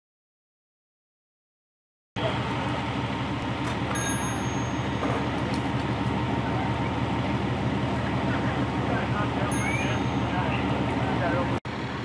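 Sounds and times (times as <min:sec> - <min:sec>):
diesel engine rumbling: 0:02.2 - 0:12.0
short high ding: 0:03.9 - 0:05.2, 0:09.5 - 0:10.4.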